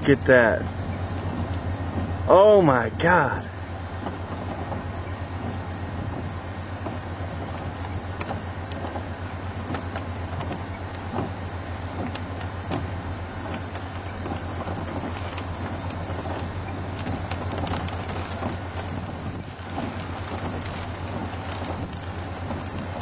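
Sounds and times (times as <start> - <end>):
rushing storm wind: 0.0 - 23.0
light ticks: 6.5 - 11.3, 11.9 - 19.0.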